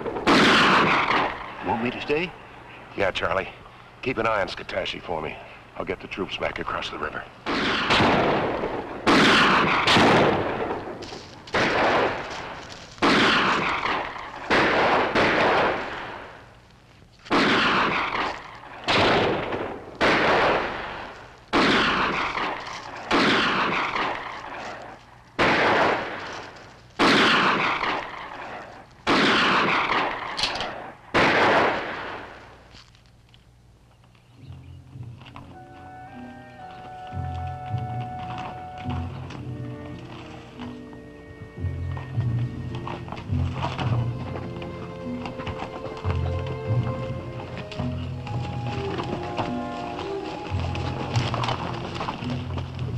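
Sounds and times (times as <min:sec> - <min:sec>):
echoing gunshots: 0:00.0 - 0:02.2, 0:07.4 - 0:16.5, 0:17.3 - 0:24.8, 0:25.4 - 0:32.6.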